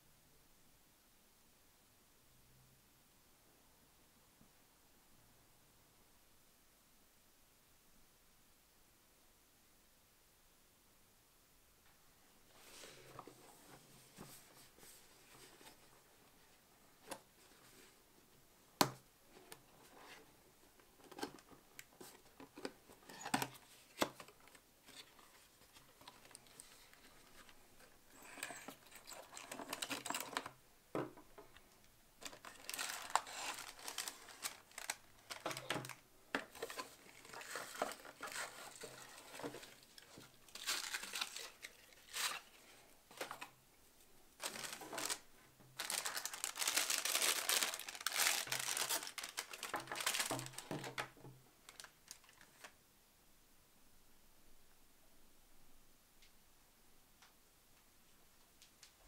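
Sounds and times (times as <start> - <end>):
packing paper and plastic crinkling: 22.0 - 30.6, 32.2 - 43.6, 44.4 - 52.7.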